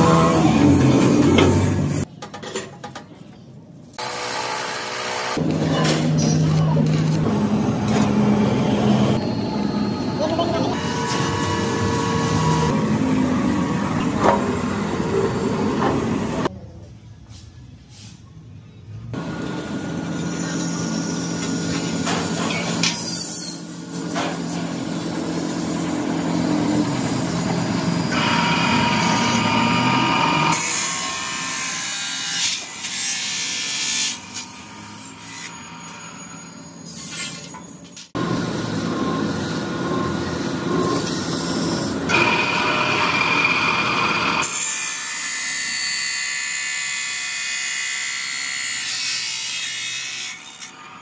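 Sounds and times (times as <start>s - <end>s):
chop saw motor hum: 4.0s - 16.5s, 25.0s - 31.7s, 38.2s - 44.6s.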